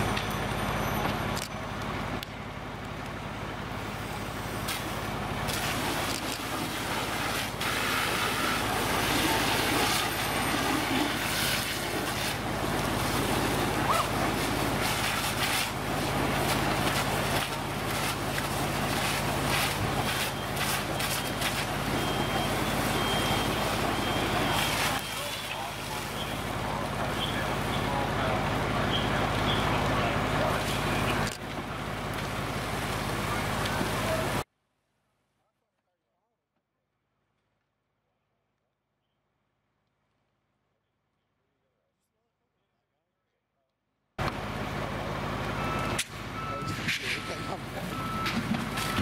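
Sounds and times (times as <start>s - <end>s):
diesel engine droning: 0.0s - 34.4s, 44.2s - 49.0s
fire cracking and popping: 0.0s - 34.4s
water streams hissing: 4.6s - 26.4s.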